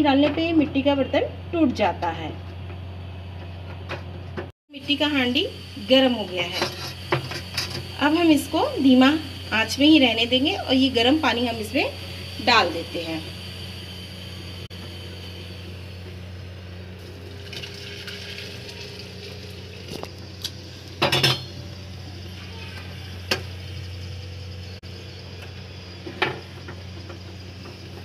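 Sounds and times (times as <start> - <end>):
water pouring: 17.0 - 20.2
steel pot clinking and knocking: 21.0 - 21.6.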